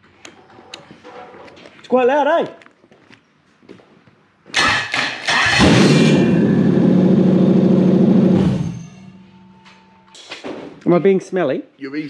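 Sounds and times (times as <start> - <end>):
starter motor cranking: 4.6 - 6.3
engine running: 4.6 - 9.9.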